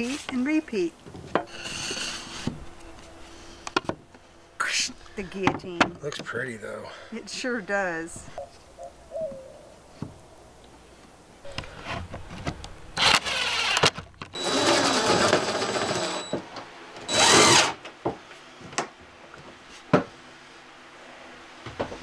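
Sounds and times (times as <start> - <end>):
cordless drill whining: 13.0 - 16.4, 17.1 - 17.8.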